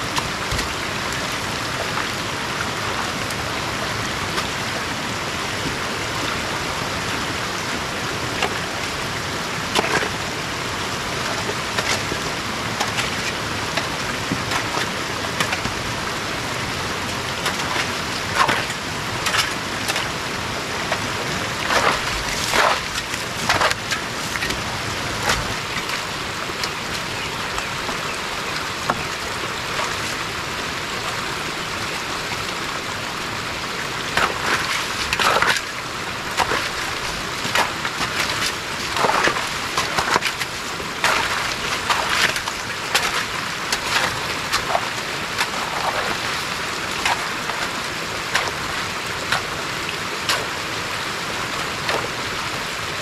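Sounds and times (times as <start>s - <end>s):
water rushing down gully: 0.0s - 53.0s
hoe digging into wet soil: 12.8s - 15.8s, 17.4s - 20.2s, 20.8s - 26.1s, 34.2s - 35.7s, 36.3s - 49.6s, 50.2s - 50.6s, 51.6s - 52.2s.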